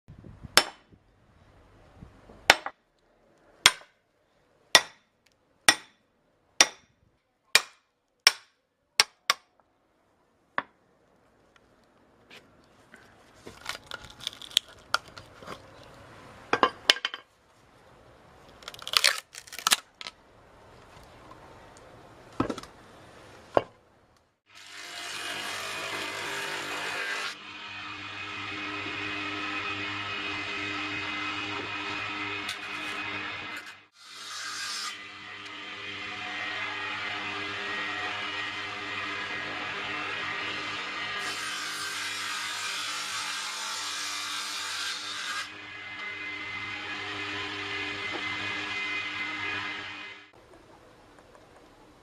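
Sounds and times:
hammer striking axe: 0:00.6 - 0:00.8, 0:02.5 - 0:02.8, 0:03.6 - 0:04.0, 0:04.8 - 0:05.0, 0:05.7 - 0:06.0, 0:06.6 - 0:06.9, 0:07.6 - 0:09.5.

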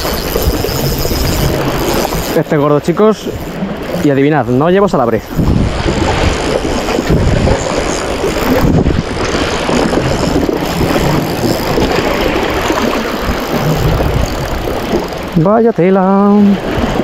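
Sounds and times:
wind on microphone: 0:00.0 - 0:15.5.

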